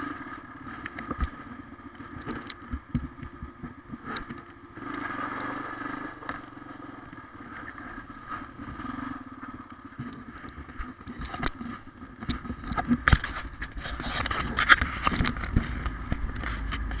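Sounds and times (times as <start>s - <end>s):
atv engine running: 0.0s - 17.0s
low rumble: 11.8s - 17.0s.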